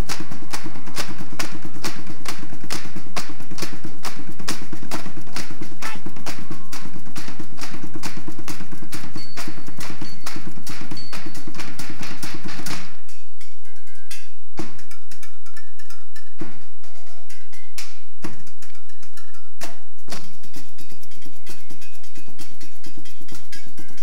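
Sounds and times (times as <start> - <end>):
fast dense clatter of strikes: 0.0 - 13.2.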